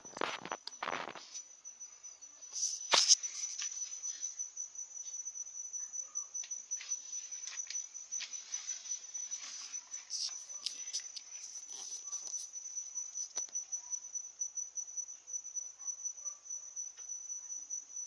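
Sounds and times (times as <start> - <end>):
cricket trilling: 0.0 - 18.0
faint clicks and rustles: 6.4 - 13.6.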